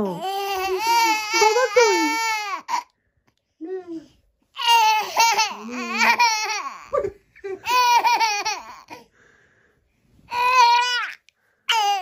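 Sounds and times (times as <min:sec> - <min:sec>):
toddler girl laughing: 0:05.0 - 0:09.0.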